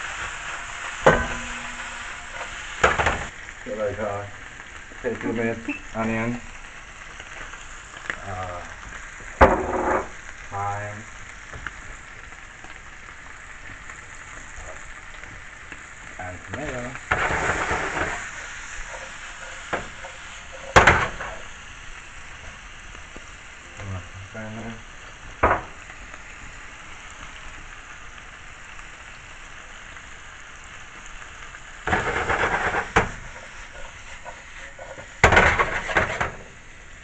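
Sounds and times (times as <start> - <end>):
scraping in a pan: 0.0 - 3.3, 9.5 - 10.2, 16.6 - 21.5, 31.8 - 36.6
food sizzling in a pan: 0.0 - 37.0.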